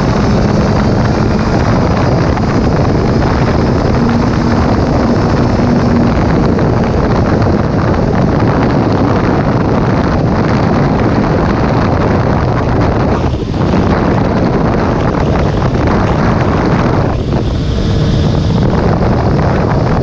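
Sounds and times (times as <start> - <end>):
faint engine hum: 0.0 - 20.0
motorcycle riding at speed: 0.0 - 20.0
wind buffeting microphone: 0.0 - 20.0.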